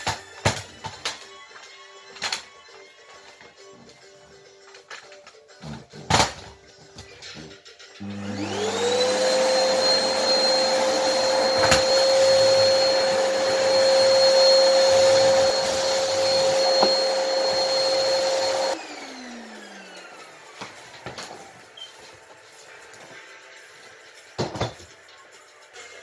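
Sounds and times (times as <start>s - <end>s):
vacuum motor whining down: 8.0s - 20.6s
vacuum cleaner running: 8.0s - 21.9s.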